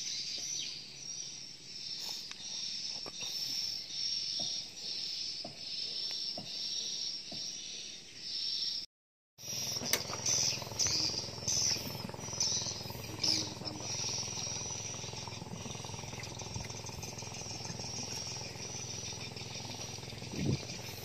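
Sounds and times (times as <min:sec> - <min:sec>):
birds chirping: 0:00.0 - 0:21.0
high insect drone: 0:09.4 - 0:21.0
low steady rumble: 0:09.4 - 0:21.0.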